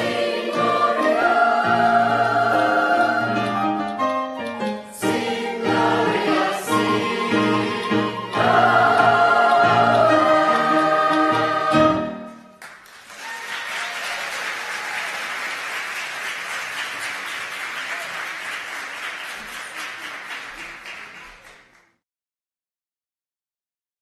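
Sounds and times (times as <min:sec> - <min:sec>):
choir singing chord: 0:00.0 - 0:03.8, 0:04.9 - 0:12.5
audience applause: 0:12.6 - 0:22.0.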